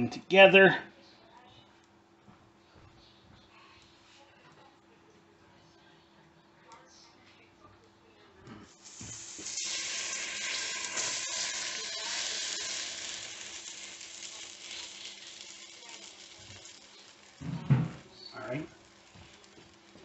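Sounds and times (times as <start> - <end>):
spaghetti sizzling in hot pot: 8.7 - 20.0.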